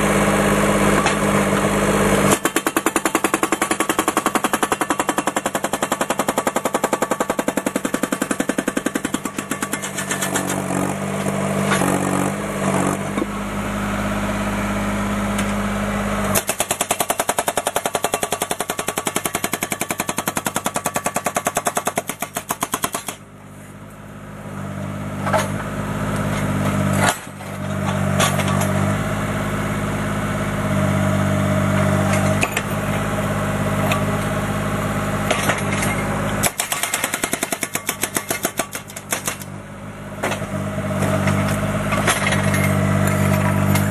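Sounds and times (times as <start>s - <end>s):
hydraulic breaker pounding concrete: 0.0s - 13.4s, 16.3s - 23.3s, 31.8s - 33.1s, 35.2s - 39.5s, 40.2s - 43.9s
excavator engine running: 0.0s - 43.9s.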